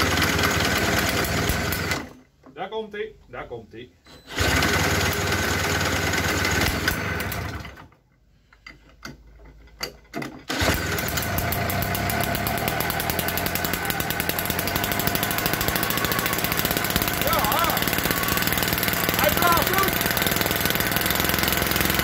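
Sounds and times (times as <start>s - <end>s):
leaf blower engine running: 0.0s - 2.1s, 4.3s - 7.8s, 10.5s - 22.0s
cordless drill spinning starter: 0.0s - 2.2s, 4.3s - 7.9s, 10.5s - 22.0s.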